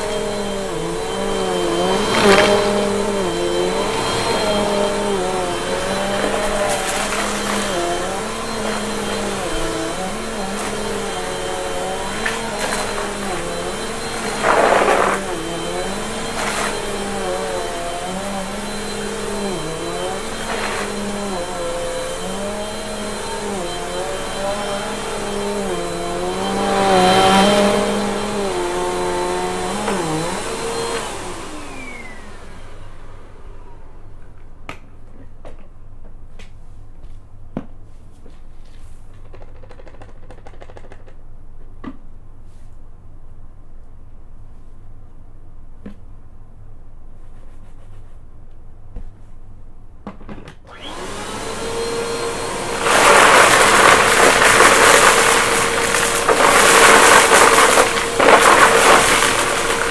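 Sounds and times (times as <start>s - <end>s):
vacuum cleaner running on carpet: 0.0s - 34.1s, 50.7s - 59.9s.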